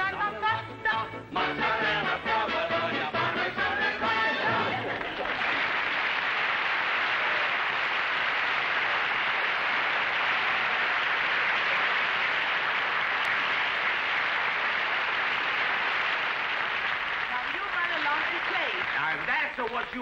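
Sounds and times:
audience applauding: 3.7s - 20.0s.

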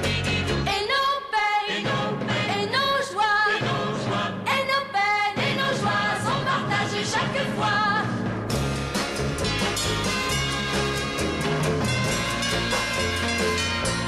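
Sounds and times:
person singing pop song: 0.0s - 8.2s
band accompaniment: 6.9s - 14.0s.

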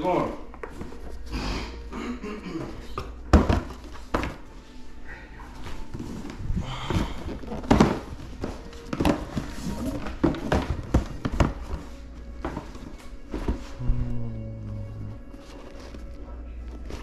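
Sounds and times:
cardboard boxes knocking: 2.8s - 4.4s, 6.2s - 13.7s
cardboard scraping: 5.6s - 13.9s.

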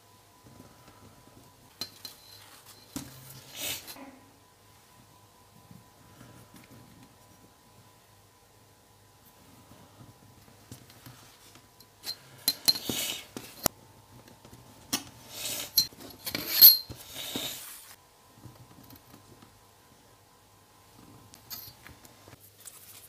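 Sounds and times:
metal ruler clinking and scraping: 15.3s - 17.6s.

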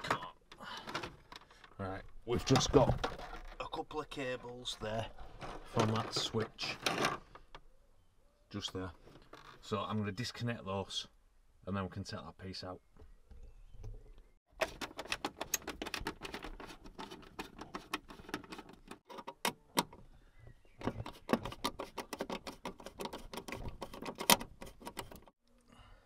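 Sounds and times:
plastic clicking and scraping: 2.4s - 3.7s, 13.8s - 20.0s, 20.8s - 25.3s.

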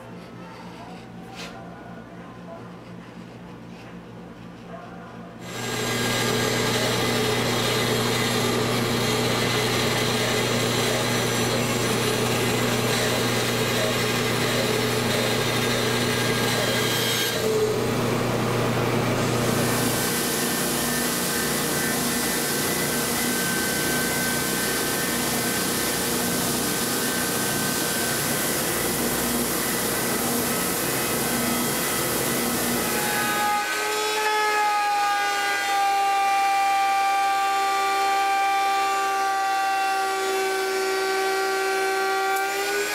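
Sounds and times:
belt sander hissing: 5.4s - 33.6s
bandsaw cutting plywood: 5.4s - 42.9s.

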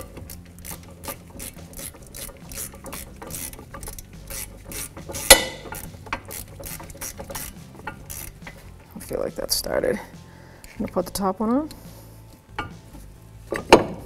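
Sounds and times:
hand ratchet clicking: 0.0s - 9.0s
sharp metallic clack: 5.0s - 8.0s.

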